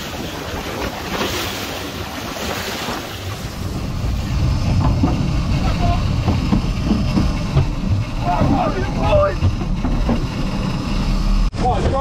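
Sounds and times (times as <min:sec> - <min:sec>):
wind buffeting microphone: 0:00.0 - 0:11.5
water splashing along boat hull: 0:00.0 - 0:12.0
low rumble: 0:03.0 - 0:12.0.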